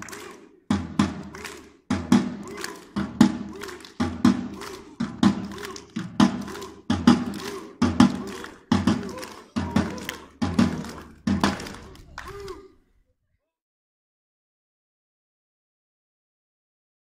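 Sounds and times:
group chanting: 0.0 - 12.8.

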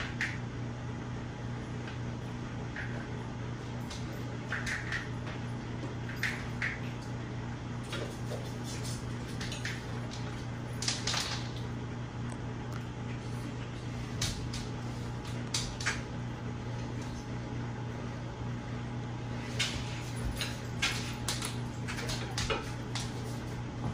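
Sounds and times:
ceiling fan motor hum: 0.0 - 23.9.

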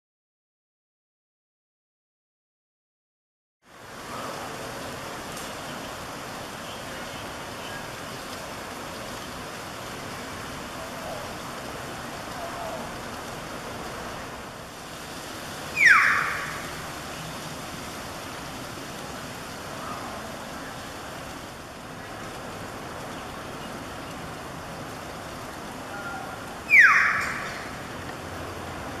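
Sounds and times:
steady background hiss: 3.7 - 29.0
myna shrill calls: 15.7 - 16.7, 26.7 - 27.7.

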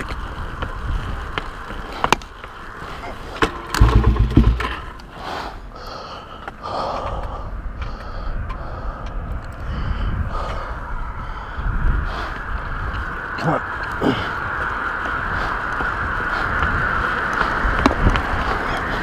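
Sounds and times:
motorcycle rolling: 0.0 - 5.2
wind noise: 0.0 - 19.0
motorcycle engine chugging: 3.4 - 5.0.

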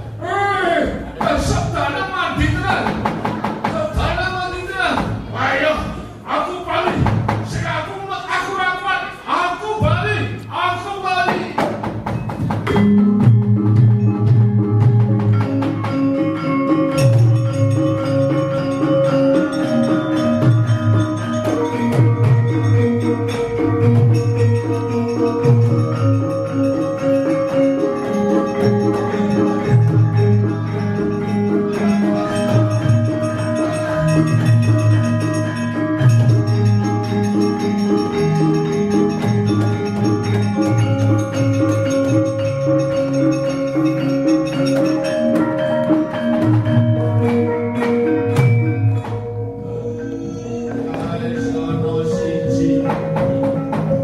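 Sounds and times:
gongs and metallophones ringing: 7.5 - 54.0
hand drum strokes: 11.2 - 54.0.

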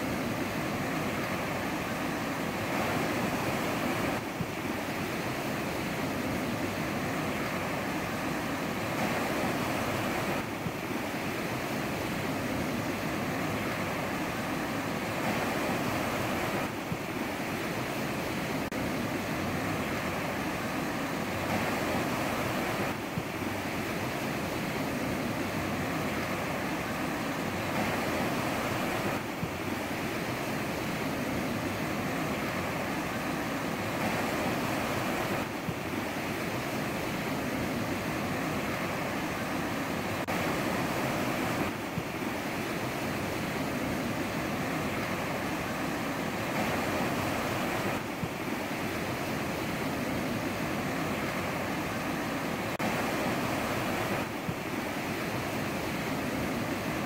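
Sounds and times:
waves breaking on shore: 0.0 - 57.0.

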